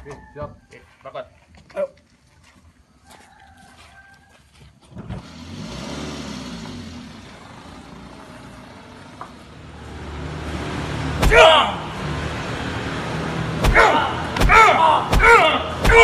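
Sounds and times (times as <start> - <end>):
car engine revving: 5.0 - 16.0
sharp knock: 13.6 - 16.0.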